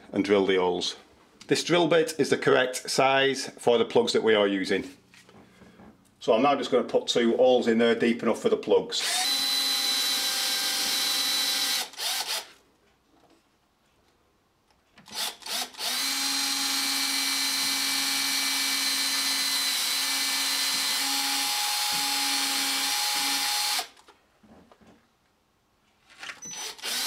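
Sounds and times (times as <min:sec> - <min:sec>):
cordless drill boring: 0:09.0 - 0:12.6, 0:15.1 - 0:24.1, 0:26.4 - 0:27.0.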